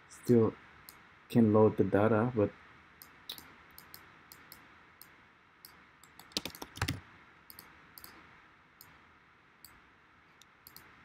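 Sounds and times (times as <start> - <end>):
low steady hiss: 0.0 - 11.0
computer keys and mouse clicking: 3.0 - 4.6, 5.6 - 8.2, 10.4 - 11.0.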